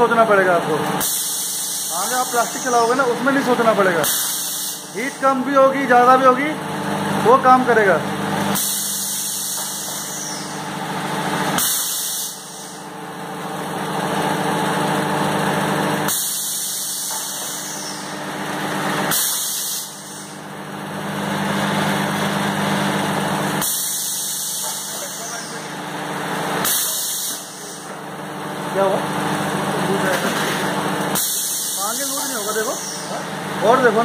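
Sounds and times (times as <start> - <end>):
machine humming: 0.0 - 34.0
pneumatic press air hisses: 1.0 - 3.0, 4.0 - 4.9, 8.5 - 10.6, 11.5 - 12.9, 16.0 - 18.2, 19.0 - 20.4, 23.6 - 25.7, 26.6 - 27.9, 30.3 - 33.2.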